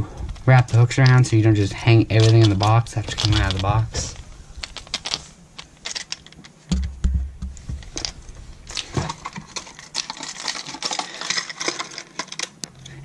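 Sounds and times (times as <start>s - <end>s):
dull low thumps: 6.7s - 8.7s.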